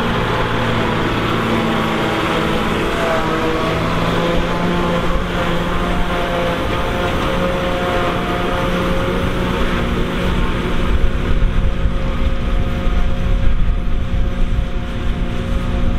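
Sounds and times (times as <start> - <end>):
forage harvester chopping grass: 0.0 - 12.3
second tractor running: 0.0 - 15.9
tractor working under load: 0.0 - 15.9.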